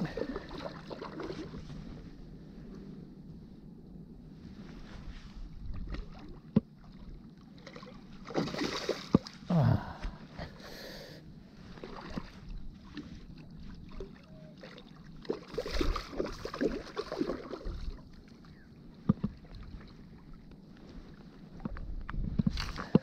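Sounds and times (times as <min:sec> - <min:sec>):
fish splashing in water: 0:07.6 - 0:09.3, 0:13.8 - 0:18.0
wind buffeting microphone: 0:20.8 - 0:23.0.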